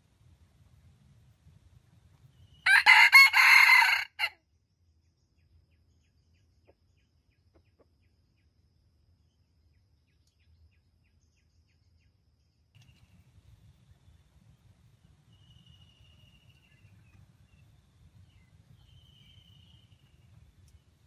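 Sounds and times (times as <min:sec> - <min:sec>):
rooster crowing: 0:02.6 - 0:04.4.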